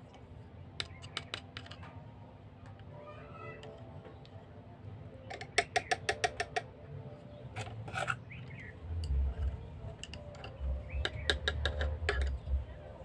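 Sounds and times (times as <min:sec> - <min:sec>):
screwdriver scraping: 0:07.6 - 0:08.2.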